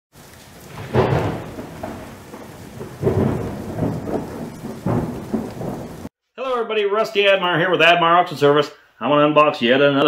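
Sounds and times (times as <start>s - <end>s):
rain hissing: 0.1s - 6.1s
thunder rumbling: 0.2s - 6.1s.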